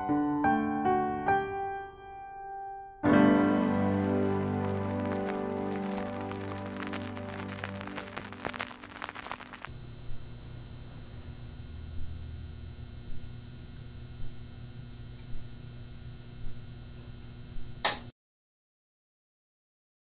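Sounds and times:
low electrical hum: 6.5s - 18.1s.

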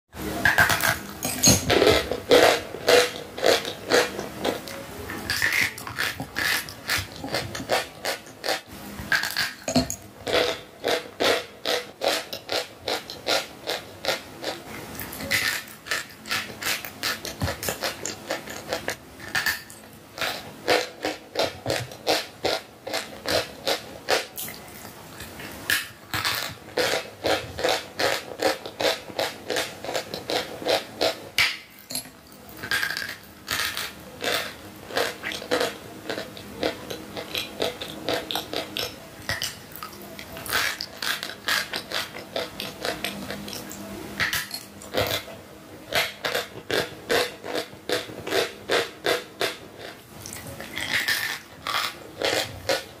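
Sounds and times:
chalk crunching being chewed: 0.4s - 45.3s, 45.9s - 53.0s.

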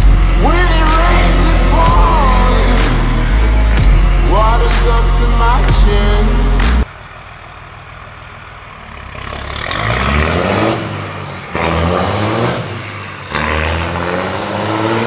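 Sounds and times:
background music: 0.0s - 6.9s
diesel engine idling and revving: 0.0s - 15.0s.

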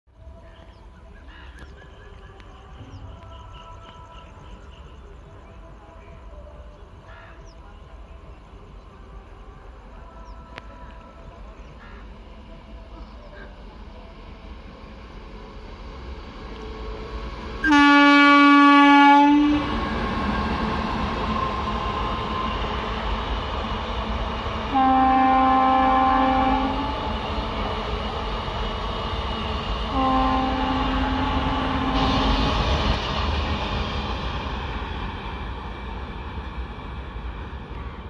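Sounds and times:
locomotive horn blasts: 17.6s - 19.7s, 24.7s - 27.0s, 29.9s - 32.4s.

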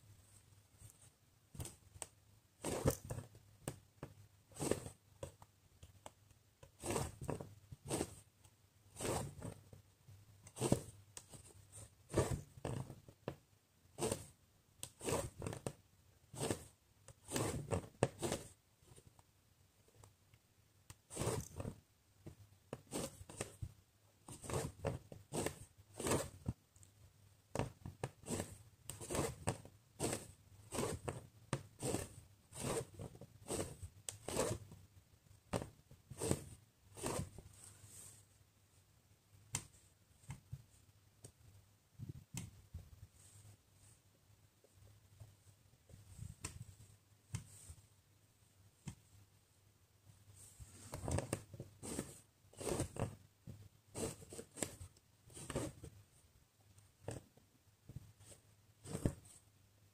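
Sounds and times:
thread rasping through fabric: 0.8s - 9.8s, 10.4s - 19.2s, 20.9s - 26.9s, 27.5s - 34.8s, 35.5s - 38.2s, 50.6s - 53.3s, 53.9s - 56.0s, 58.0s - 59.5s.

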